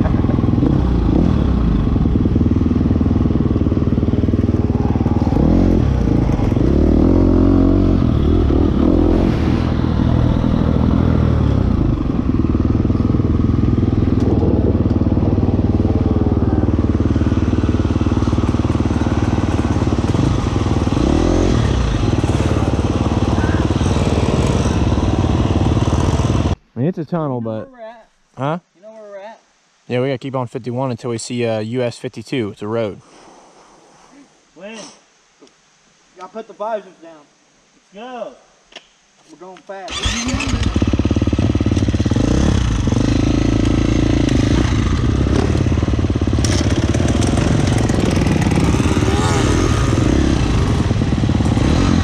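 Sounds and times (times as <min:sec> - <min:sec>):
dirt bike engine revving: 0:00.0 - 0:26.6, 0:39.9 - 0:52.0.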